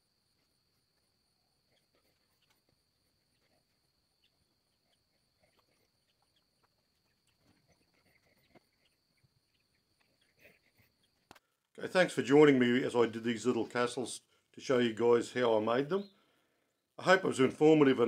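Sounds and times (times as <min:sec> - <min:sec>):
faint ticks: 0:00.3 - 0:11.8.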